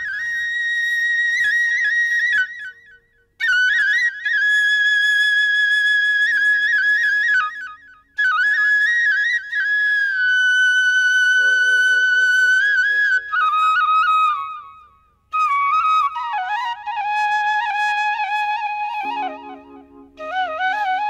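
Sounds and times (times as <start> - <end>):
solo flute melody: 8.2 - 21.0.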